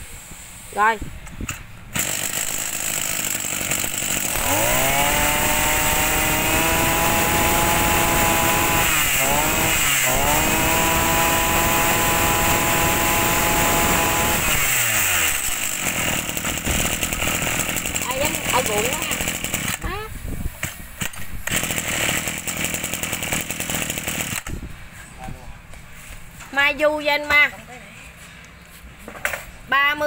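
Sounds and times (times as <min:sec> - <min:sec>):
brush cutter engine revving: 0:01.9 - 0:24.6.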